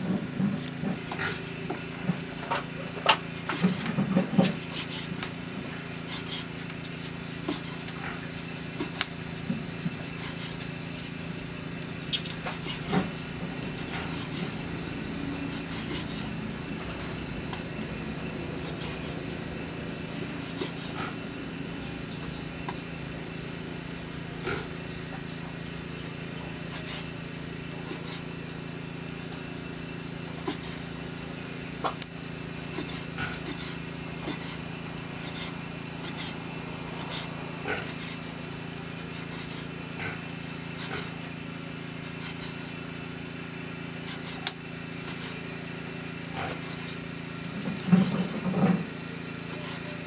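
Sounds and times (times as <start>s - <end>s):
soft cutting and rubbing: 35.2s - 36.4s, 41.9s - 42.7s, 44.0s - 45.5s, 46.5s - 47.0s, 49.4s - 50.0s.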